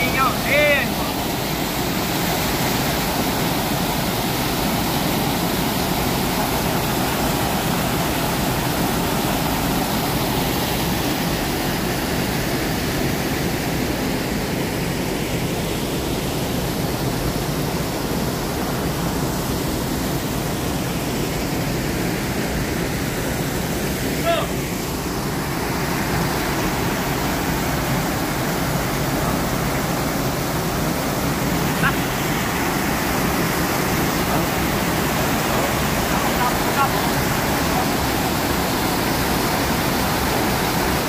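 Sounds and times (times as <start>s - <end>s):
water rushing over weir: 0.0s - 41.0s.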